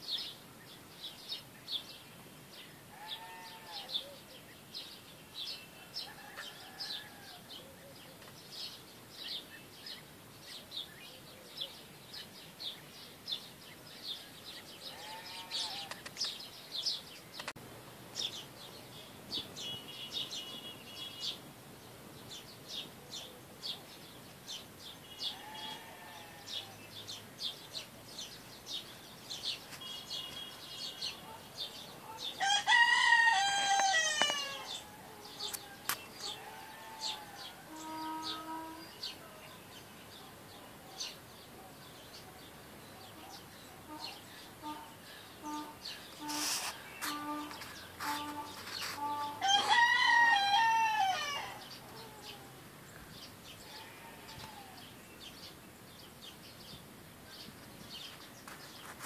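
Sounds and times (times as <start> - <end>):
small birds chirping: 0.0 - 32.6, 33.4 - 49.9, 50.5 - 59.0
rooster crowing: 5.8 - 7.5, 32.4 - 38.2, 49.4 - 52.4
soft fowl calls: 32.1 - 38.8, 43.0 - 52.6.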